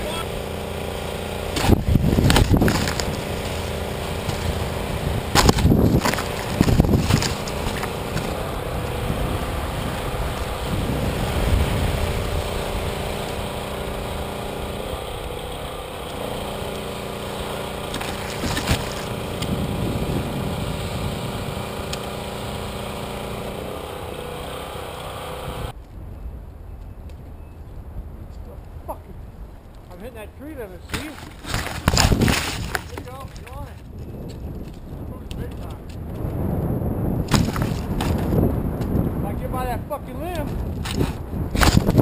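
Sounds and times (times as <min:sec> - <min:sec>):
small electric motor running: 0:00.2 - 0:25.8.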